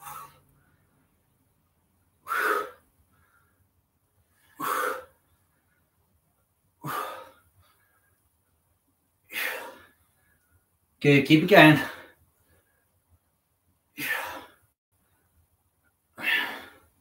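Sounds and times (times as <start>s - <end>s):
man exhaling forcefully: 2.2s - 2.8s, 4.6s - 5.1s, 6.8s - 7.4s.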